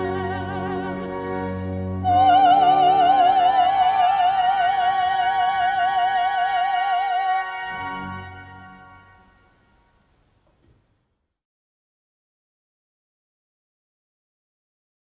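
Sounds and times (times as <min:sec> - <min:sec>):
soprano singing: 0:00.0 - 0:09.4
pipe organ: 0:00.0 - 0:10.0.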